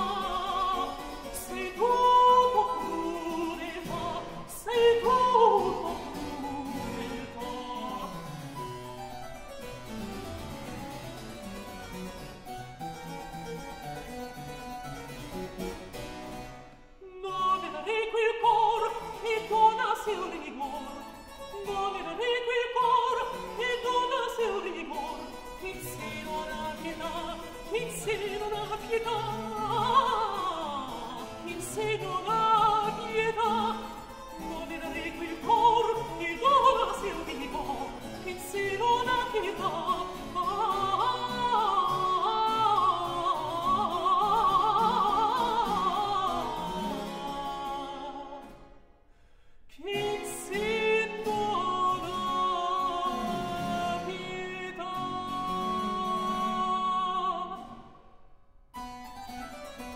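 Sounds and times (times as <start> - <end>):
countertenor singing: 0.0 - 8.4, 17.0 - 48.5, 49.7 - 57.8
harpsichord playing: 0.0 - 16.7.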